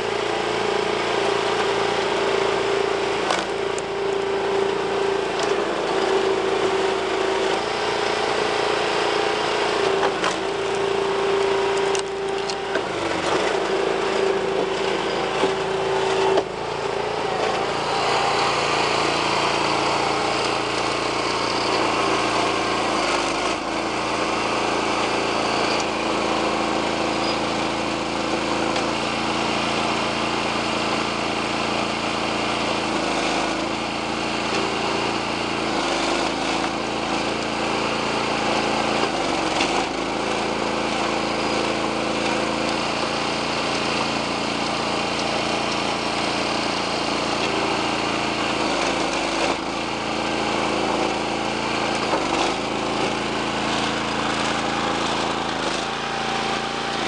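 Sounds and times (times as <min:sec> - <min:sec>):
log splitter motor and pump running: 0:00.0 - 0:57.0
wood splitting crack: 0:03.2 - 0:03.9.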